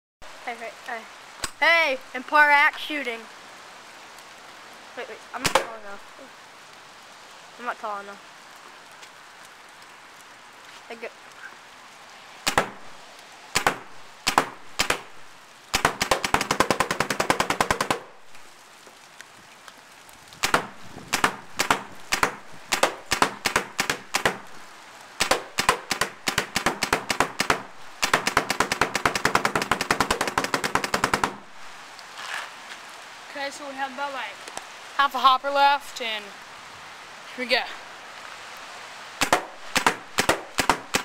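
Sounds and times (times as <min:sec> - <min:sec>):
paintball marker firing: 0:12.5 - 0:12.8, 0:15.8 - 0:18.0, 0:20.4 - 0:24.4, 0:25.2 - 0:31.4, 0:39.2 - 0:41.0.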